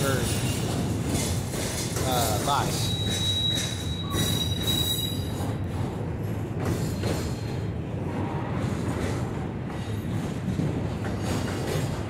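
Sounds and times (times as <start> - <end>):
train clunks: 0.0 - 12.0
train wheels rumbling on rail: 0.0 - 12.0
high wheel squeal: 2.2 - 5.6.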